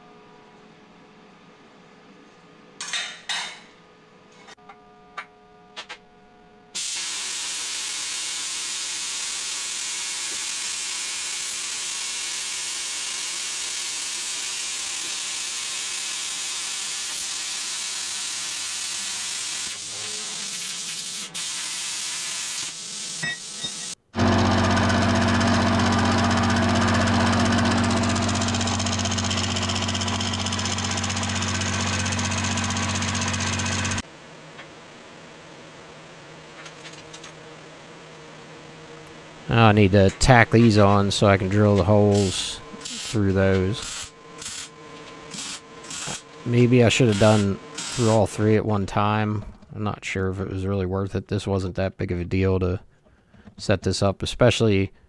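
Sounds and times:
plasma cutter hissing: 0:06.8 - 0:24.0
milling machine humming: 0:24.2 - 0:34.0.

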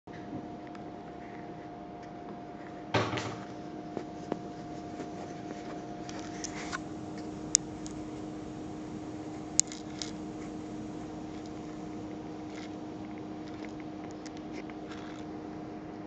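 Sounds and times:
knock with short rattle: 0:03.0 - 0:03.5
steady hum: 0:03.0 - 0:16.0
light clicks: 0:06.1 - 0:12.8.

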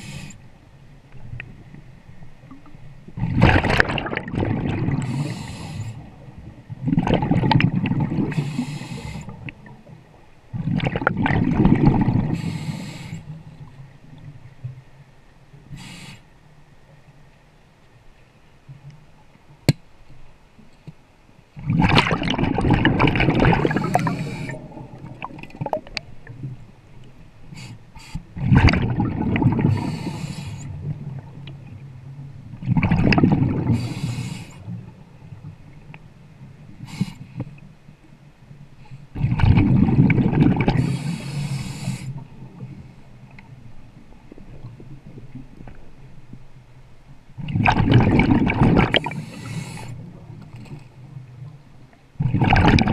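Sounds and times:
hiss of air: 0:00.0 - 0:00.4, 0:05.1 - 0:06.0, 0:08.3 - 0:09.4, 0:12.3 - 0:13.4, 0:15.7 - 0:16.3, 0:29.7 - 0:30.7, 0:33.8 - 0:34.7, 0:40.8 - 0:42.2, 0:49.1 - 0:50.0
scuba regulator bubbling exhalations: 0:03.2 - 0:06.2, 0:06.8 - 0:09.5, 0:10.5 - 0:13.0, 0:21.6 - 0:26.1, 0:27.6 - 0:31.2, 0:32.6 - 0:34.4, 0:39.2 - 0:42.1, 0:47.4 - 0:50.2, 0:52.2 - 0:52.9.

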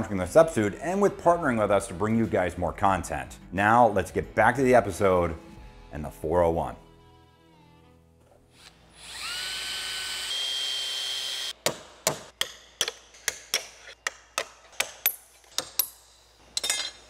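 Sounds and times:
power drill whining: 0:08.5 - 0:11.6
hammer striking metal punch: 0:11.6 - 0:16.0.

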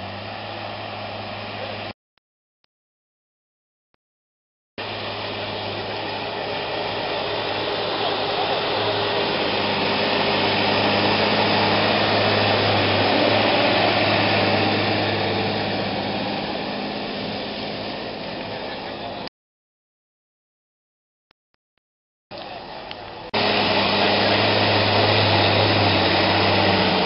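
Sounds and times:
tractor diesel engine under load: 0:00.0 - 0:02.0, 0:04.8 - 0:19.3, 0:22.3 - 0:27.0.

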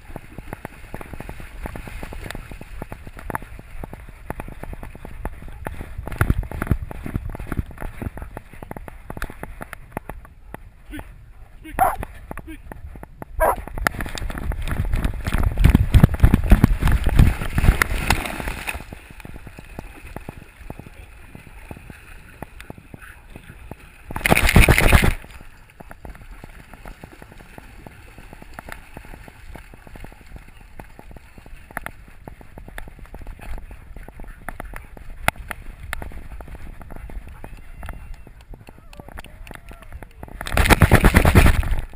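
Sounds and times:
water sloshing and splashing: 0:13.4 - 0:31.6.

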